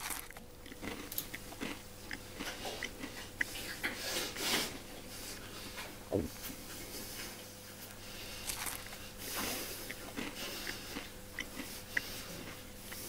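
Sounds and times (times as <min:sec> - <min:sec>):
food crunching: 0:00.0 - 0:04.6, 0:08.4 - 0:13.0
low thud: 0:06.1 - 0:06.3.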